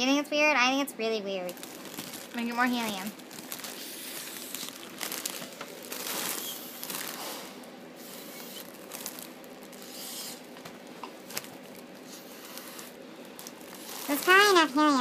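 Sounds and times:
foil balloon crinkling: 0:01.4 - 0:15.0
hissing intake of helium: 0:09.8 - 0:10.4.

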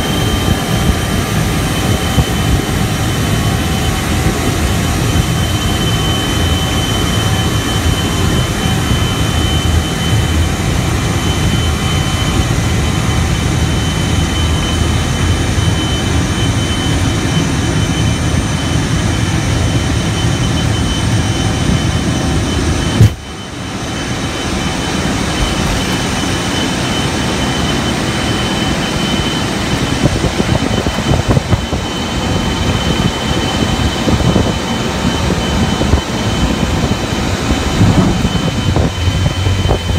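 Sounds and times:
jet engines roaring: 0:00.0 - 0:39.9
sharp thump: 0:23.0 - 0:23.3.

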